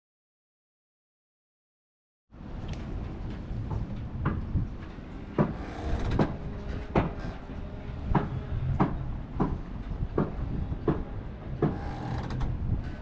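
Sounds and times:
steady low rumble: 2.4s - 13.0s
sharp knocks and clunks: 3.6s - 4.6s, 5.4s - 7.3s, 8.1s - 12.5s.

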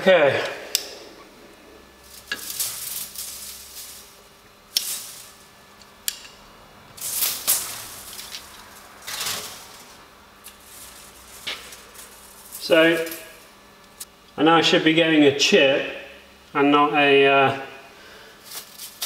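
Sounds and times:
metal swarf rustling and rattling: 2.0s - 5.8s, 7.0s - 13.5s.

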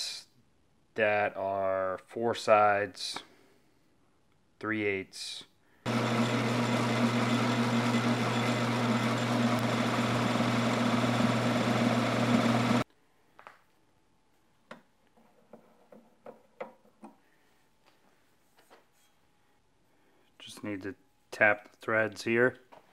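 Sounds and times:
metal lathe humming: 5.9s - 12.8s.

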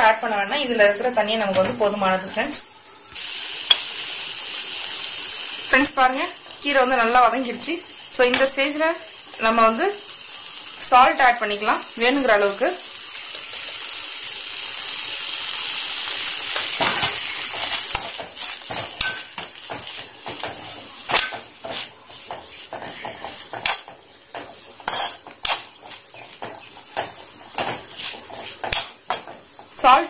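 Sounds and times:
leaves sizzling in a pan: 0.0s - 30.0s
spatula scraping a pan: 16.6s - 30.0s.

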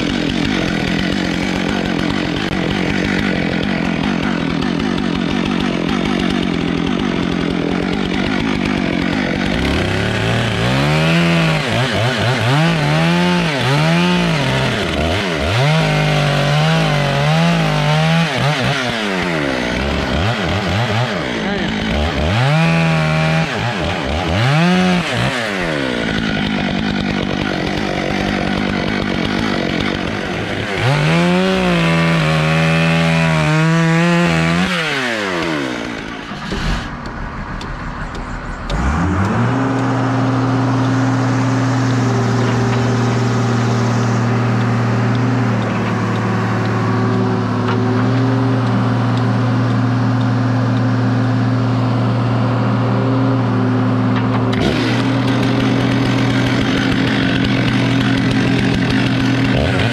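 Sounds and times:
chainsaw cutting log: 0.0s - 59.9s
engine steady drone: 35.2s - 59.9s.

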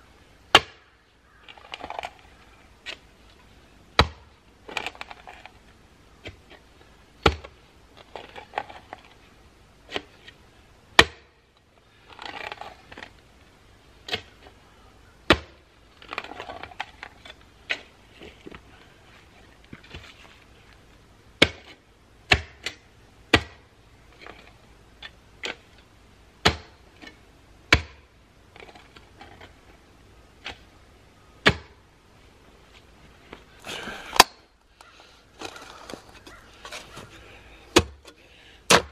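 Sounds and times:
scraping soil: 1.4s - 3.4s, 4.6s - 10.4s, 11.9s - 13.2s, 15.9s - 20.8s, 28.5s - 30.7s, 34.8s - 38.9s.

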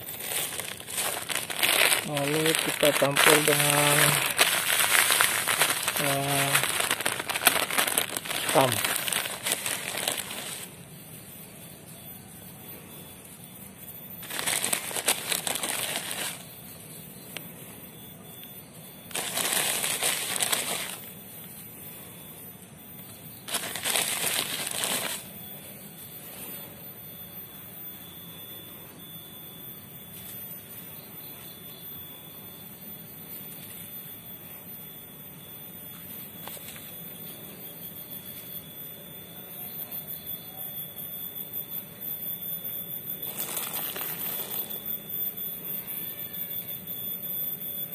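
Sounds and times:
plastic bag rustling: 0.0s - 10.7s, 14.2s - 16.5s, 19.1s - 21.1s, 23.5s - 25.3s, 43.2s - 44.7s.

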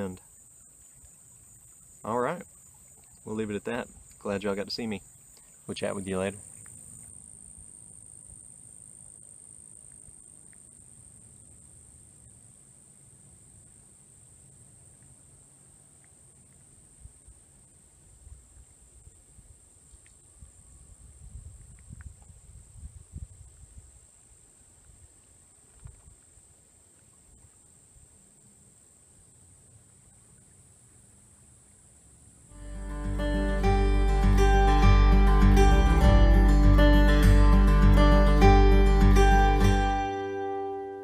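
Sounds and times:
insects droning: 0.0s - 41.0s.

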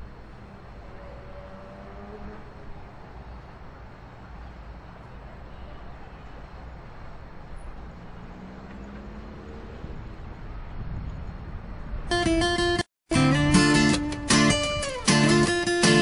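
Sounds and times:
distant traffic rumble: 0.0s - 12.4s
faint engine rising in pitch: 0.4s - 2.9s.

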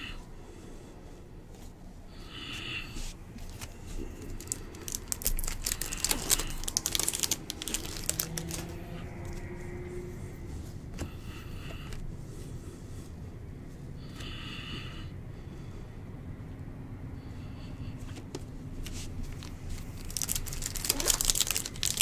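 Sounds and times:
card pack wrapper tearing: 3.5s - 8.8s, 19.3s - 22.0s.

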